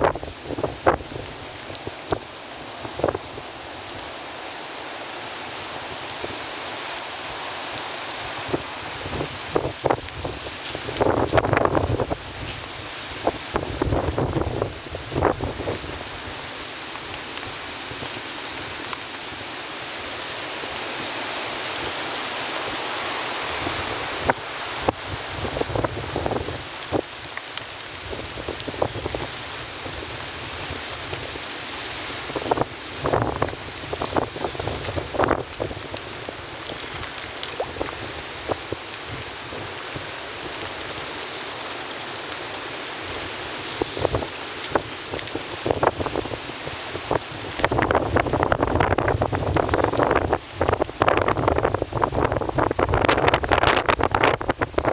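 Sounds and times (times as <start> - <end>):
seawater rushing and foaming: 0.0 - 54.9
wind buffeting microphone: 8.3 - 16.1, 23.5 - 31.5, 32.2 - 40.8, 43.1 - 54.9.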